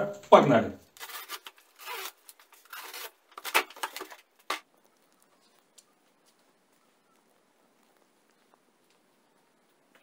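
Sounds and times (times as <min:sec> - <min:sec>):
utility knife slicing packing tape: 0:01.0 - 0:04.6.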